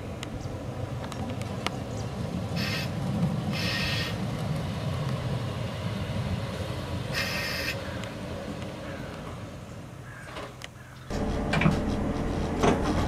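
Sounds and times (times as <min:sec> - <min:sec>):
train rumbling: 0:00.0 - 0:13.0
train wheels squealing: 0:02.6 - 0:04.2, 0:07.1 - 0:07.8.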